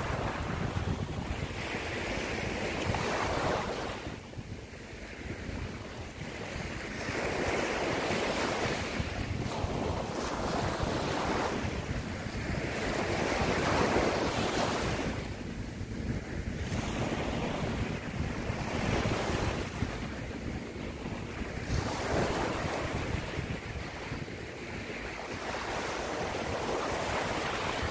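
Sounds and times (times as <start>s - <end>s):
small waves breaking on sand: 0.0s - 15.4s, 16.0s - 27.9s
wind buffeting microphone: 0.0s - 27.9s.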